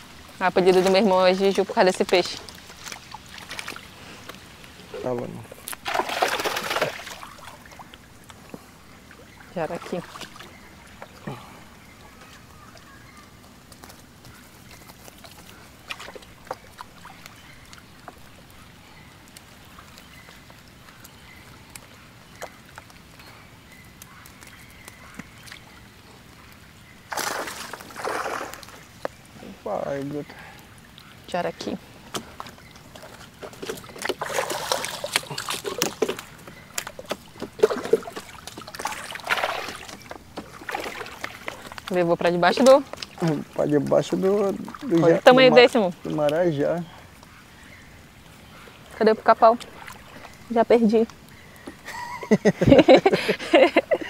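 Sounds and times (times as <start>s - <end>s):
water splashes: 0.0s - 54.0s
knocks and clatter in a canoe: 32.1s - 43.2s.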